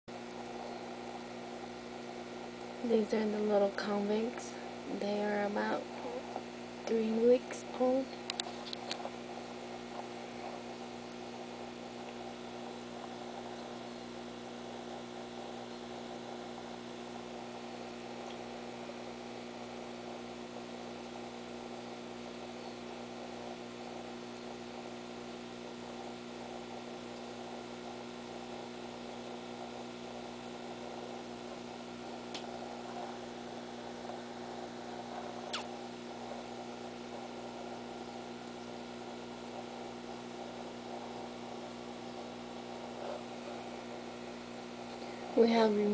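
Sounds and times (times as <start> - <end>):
air pump humming: 0.1 - 45.9.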